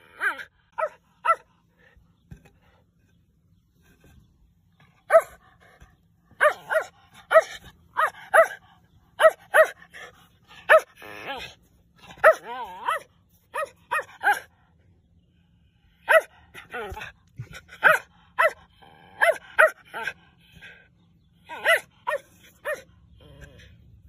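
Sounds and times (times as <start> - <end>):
puppy growling: 23.1 - 24.0.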